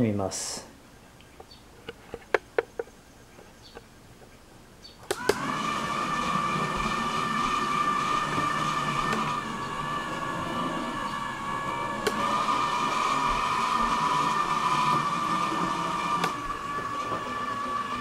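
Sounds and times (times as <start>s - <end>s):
small electric motors whining: 5.1s - 18.0s.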